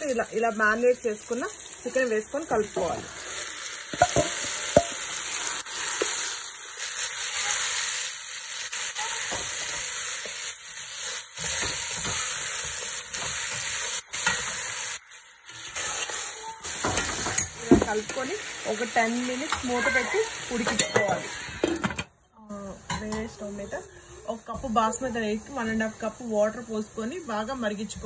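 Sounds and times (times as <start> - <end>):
chicken sizzling in oil: 0.0 - 22.0
spatula knocking pot: 3.9 - 5.0.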